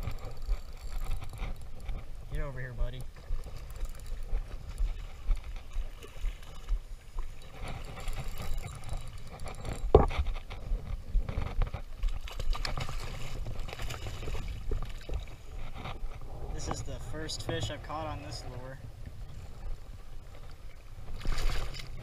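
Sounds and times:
wind rumble on microphone: 0.0s - 22.0s
sea water splashing over rocks: 20.1s - 22.0s.

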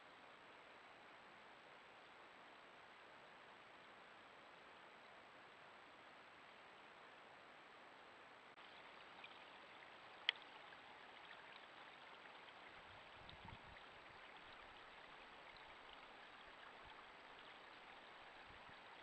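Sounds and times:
microphone hiss: 0.0s - 19.0s
water trickling: 8.6s - 19.0s
small ticks: 10.2s - 12.6s.

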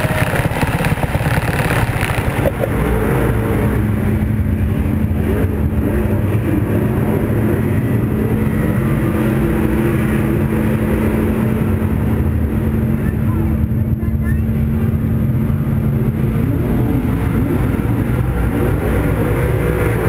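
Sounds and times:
race car engine rumbling: 0.0s - 20.0s.

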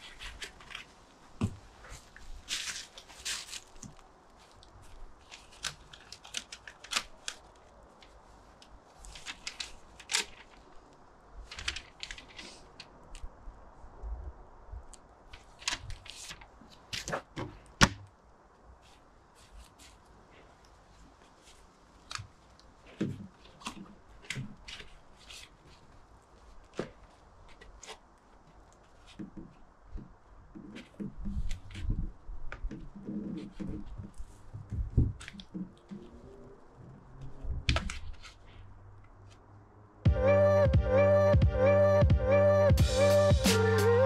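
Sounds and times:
packaging wrapping crinkling: 1.9s - 12.9s.

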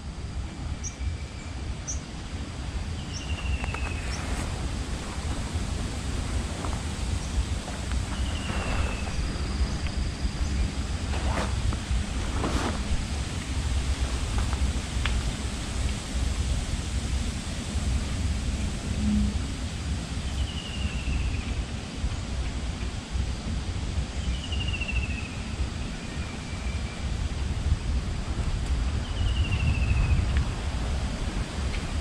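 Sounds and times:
wind on microphone: 0.0s - 32.0s
leaves rustling: 1.7s - 22.3s
bird whistled call: 8.1s - 11.6s.

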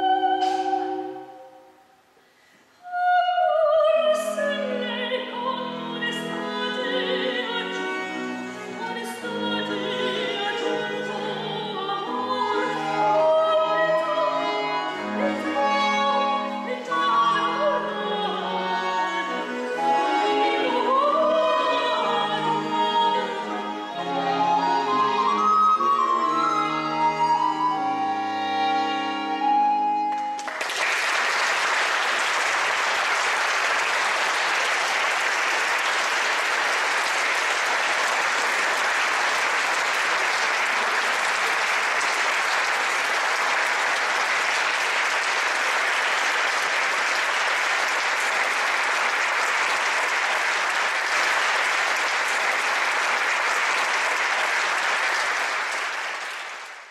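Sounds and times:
soprano singing with early instruments: 0.0s - 1.9s, 2.8s - 30.4s
audience applauding: 30.1s - 56.9s.

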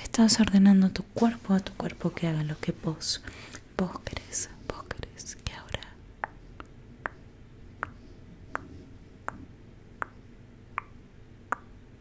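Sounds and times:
soft mouth clicks: 5.7s - 11.7s.

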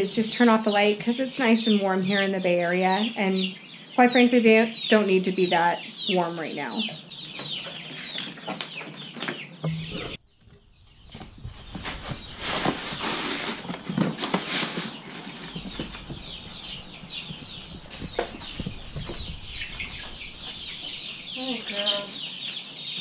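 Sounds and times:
baby chicks peeping: 0.0s - 23.0s
dry feed rustling in paper bag: 11.2s - 19.2s.

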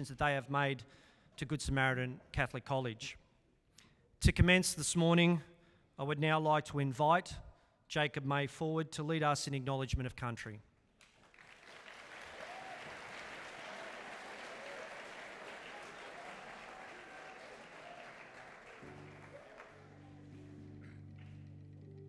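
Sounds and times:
audience applauding: 11.0s - 22.0s
soft background music: 18.8s - 22.0s.

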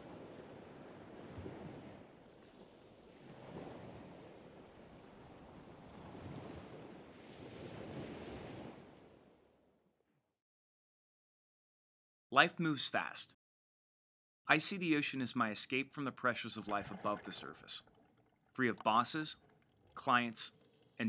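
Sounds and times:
ocean waves washing in: 0.0s - 9.5s.

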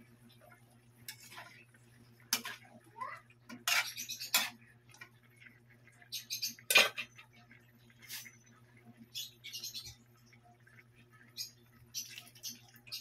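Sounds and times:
metal ladle scraping a wok: 3.5s - 4.6s, 6.7s - 7.1s.

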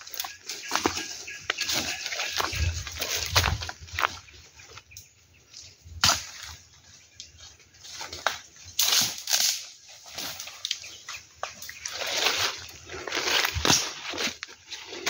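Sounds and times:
leaves and undergrowth rustling: 0.0s - 15.0s
twigs snapping: 7.9s - 15.0s.

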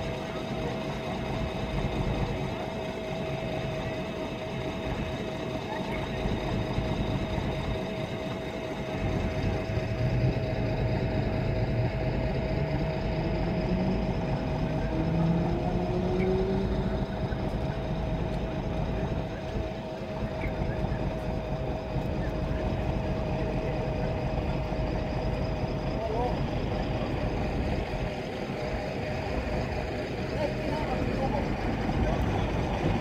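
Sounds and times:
traffic engines whining: 0.0s - 33.0s
vehicle pulling away: 12.5s - 19.4s.

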